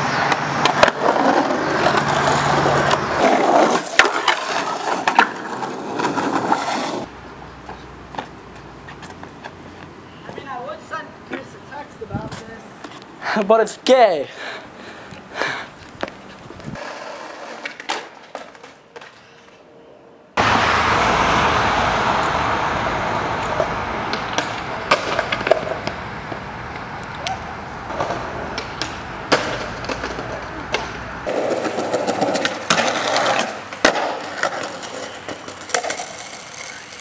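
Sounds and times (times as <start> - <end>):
skateboard wheels rolling on asphalt: 0.0 - 19.8, 20.4 - 37.0
skateboard clacking on concrete: 0.3 - 9.6, 16.0 - 19.5, 23.6 - 37.0.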